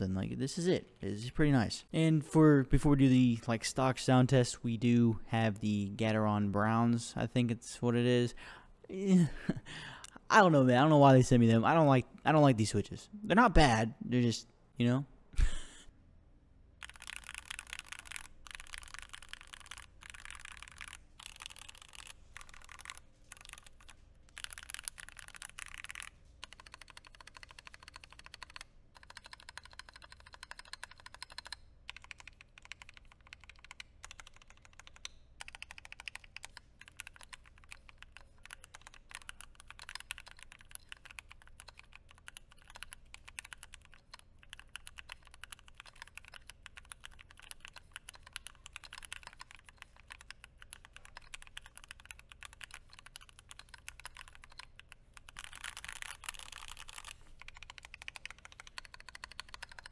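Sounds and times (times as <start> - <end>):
mechanical keyboard typing: 16.8 - 59.9.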